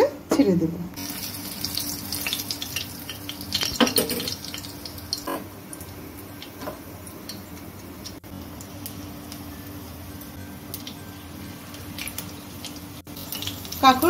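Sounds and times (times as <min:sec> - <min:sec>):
oil sizzling with pops: 0:01.0 - 0:14.0.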